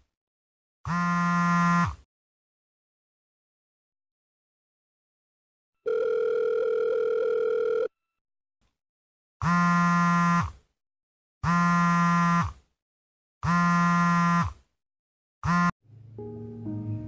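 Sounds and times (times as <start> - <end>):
phone vibrating on hard surface: 0.9 - 2.1, 5.9 - 7.9, 9.4 - 10.6, 11.4 - 12.6, 13.4 - 14.6, 15.4 - 15.8
phone ringback tone: 5.8 - 8.0.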